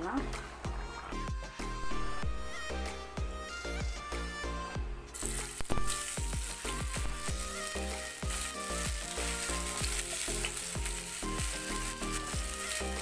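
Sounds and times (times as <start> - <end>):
background music: 0.0 - 13.0
fish sizzling in oil: 5.2 - 13.0.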